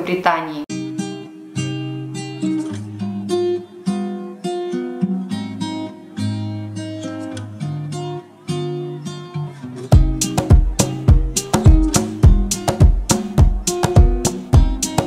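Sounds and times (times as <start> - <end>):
acoustic guitar picking: 0.7 - 15.0.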